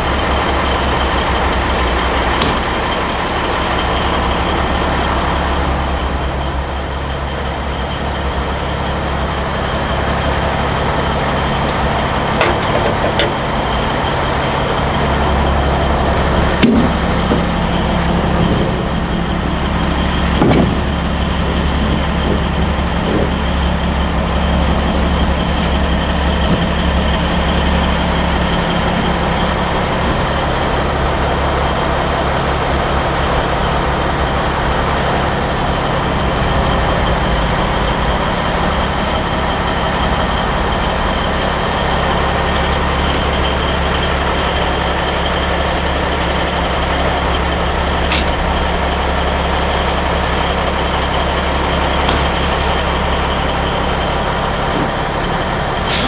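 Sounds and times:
diesel truck engine idling: 0.0 - 56.0
metal knocks and clanks: 2.2 - 3.1, 11.7 - 13.6, 20.3 - 21.0.

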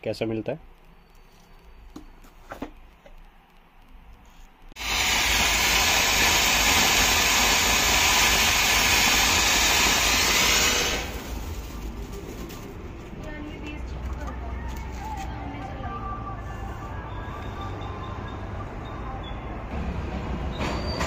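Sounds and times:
fountain firework hissing: 4.8 - 12.0.

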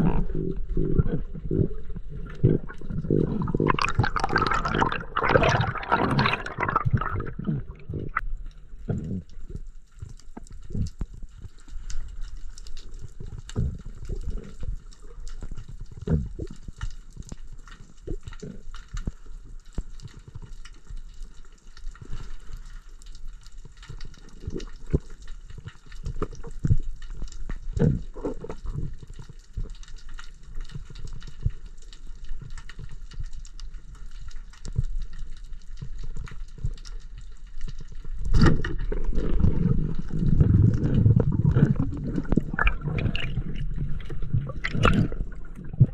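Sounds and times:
churning water: 0.0 - 8.2, 38.2 - 45.9
underwater rushes of water: 0.0 - 45.9.

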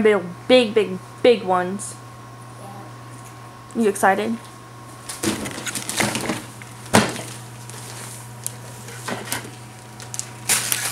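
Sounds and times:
wrapping paper crinkling and tearing: 5.1 - 6.5, 7.2 - 8.8, 9.6 - 10.9.

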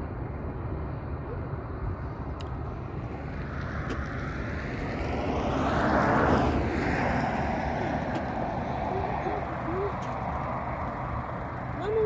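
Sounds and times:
vehicle passing by: 2.7 - 12.0.

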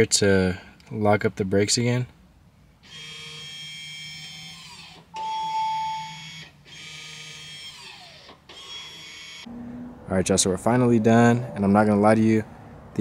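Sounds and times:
steady beep: 5.2 - 6.3.

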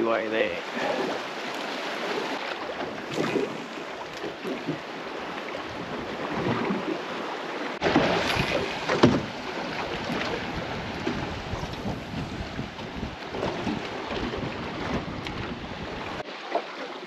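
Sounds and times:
water lapping against boat hull: 0.0 - 17.0
sharp clunks: 7.9 - 9.3
wind buffeting microphone: 8.1 - 16.2.

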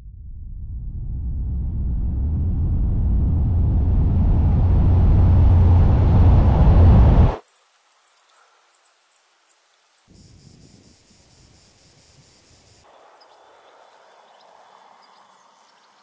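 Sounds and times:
deep noisy rumble: 0.0 - 7.4.

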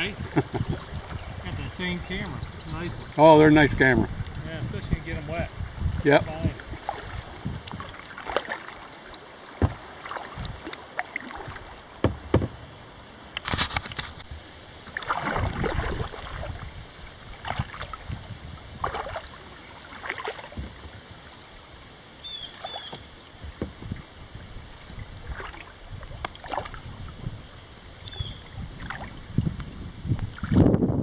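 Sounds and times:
rush of water: 0.0 - 31.0
paddle splashing in water: 6.4 - 30.7.

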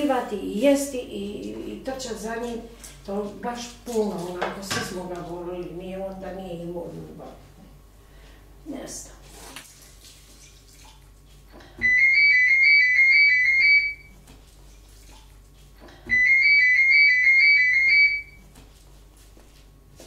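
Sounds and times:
electronic warbling ring: 11.8 - 14.1, 16.1 - 18.4.

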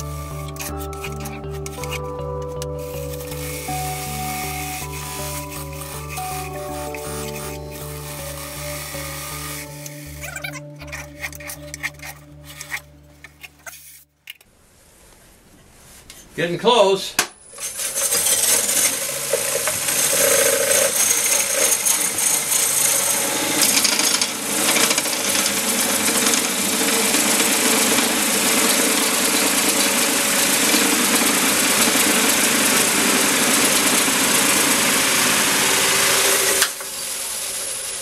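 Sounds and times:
coring knife cutting spinning wood: 17.6 - 36.9.

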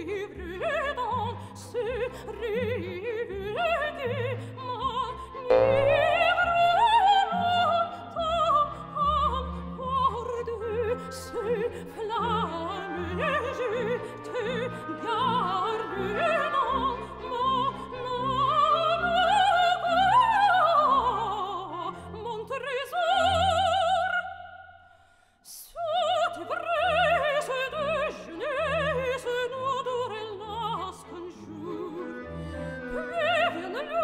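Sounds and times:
operatic singing: 0.0 - 24.2, 25.8 - 34.0
orchestral accompaniment: 5.5 - 7.1.

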